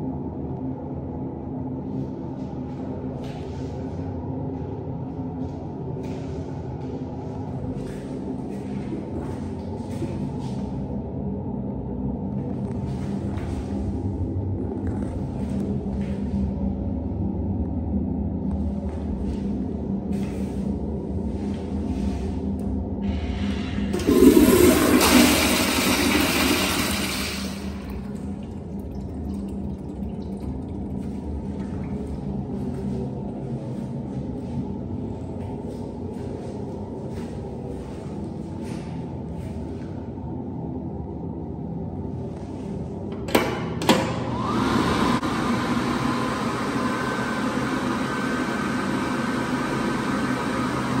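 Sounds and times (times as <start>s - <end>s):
faint high motor hum: 0.0s - 51.0s
hand dryer blowing air: 23.0s - 28.0s, 43.3s - 51.0s
toilet flushing: 23.0s - 33.0s, 43.4s - 51.0s.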